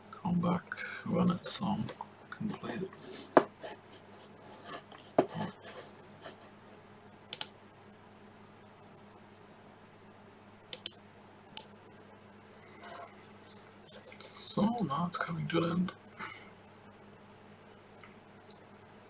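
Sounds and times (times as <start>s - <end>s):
low electrical hum: 0.0s - 19.0s
keyboard and mouse clicks: 7.3s - 7.6s, 10.7s - 11.7s.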